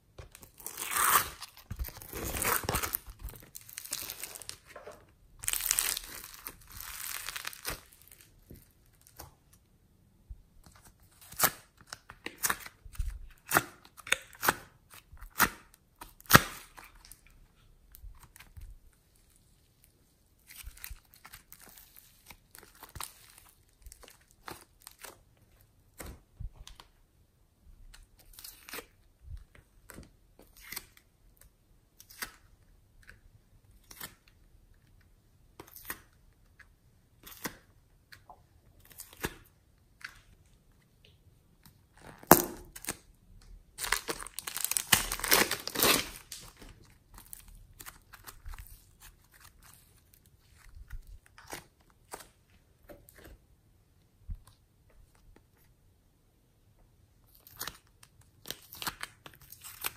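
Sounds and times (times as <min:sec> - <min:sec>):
slime tearing rustle: 0:00.3 - 0:04.7, 0:05.4 - 0:09.2, 0:43.8 - 0:52.3.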